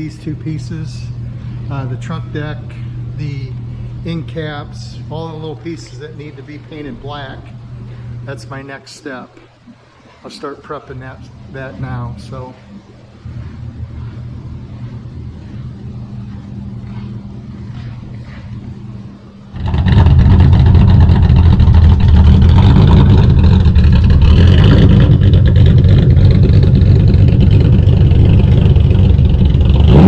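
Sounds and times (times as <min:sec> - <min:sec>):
car engine humming: 0:09.3 - 0:30.0
car engine revving hard: 0:19.6 - 0:30.0.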